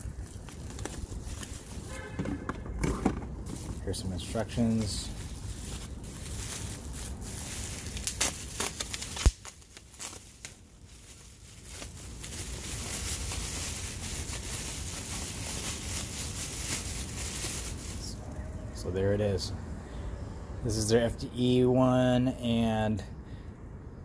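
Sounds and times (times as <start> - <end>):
bubble wrap crinkling: 0.0 - 2.0, 3.4 - 18.2
bubble wrap snap: 7.8 - 16.9.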